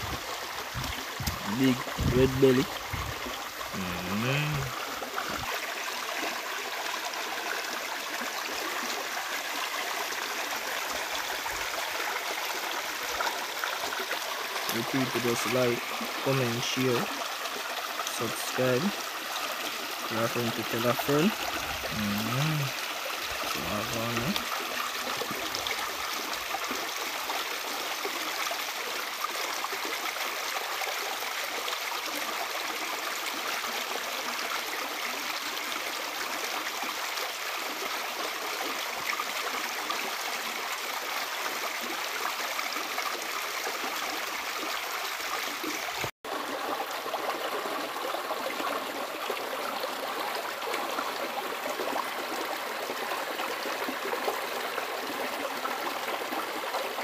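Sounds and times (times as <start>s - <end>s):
river running over rocks: 0.0s - 34.0s.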